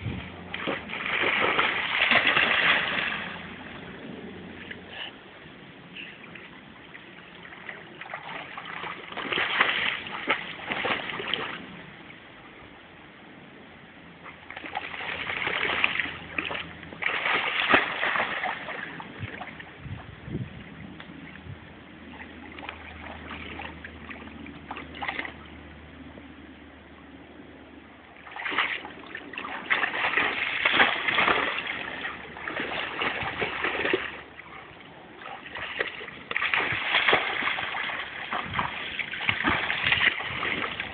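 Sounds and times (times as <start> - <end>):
lapping water: 0.0 - 11.8, 28.2 - 40.9
dog splashing in water: 0.2 - 3.6, 7.4 - 11.8, 14.5 - 19.6, 28.2 - 40.9.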